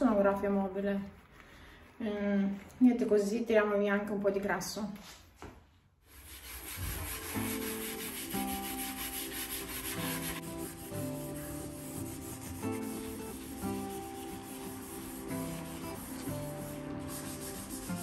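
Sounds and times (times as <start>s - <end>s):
metal scourer scrubbing wood: 6.1s - 18.0s
background music: 6.6s - 18.0s.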